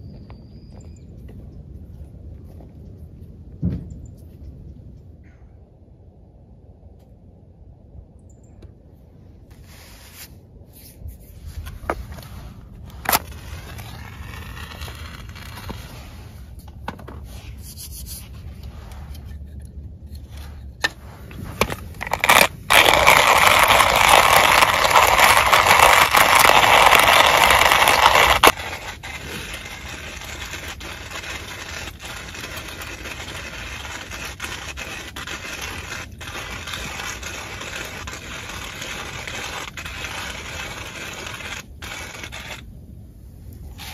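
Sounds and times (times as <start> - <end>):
soft steady rustle: 9.2 - 43.9
hands scraping kindling wood: 11.5 - 42.6.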